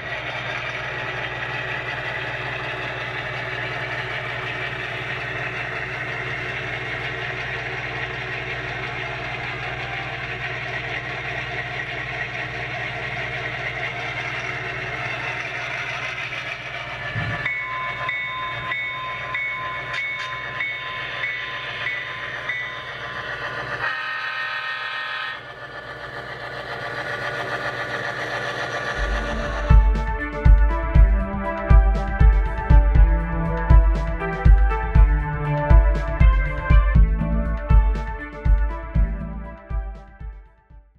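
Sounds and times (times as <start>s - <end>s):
diesel engine idling: 0.0s - 40.6s
rapidly repeating bell ring: 17.4s - 23.3s
locomotive horn: 29.0s - 40.4s.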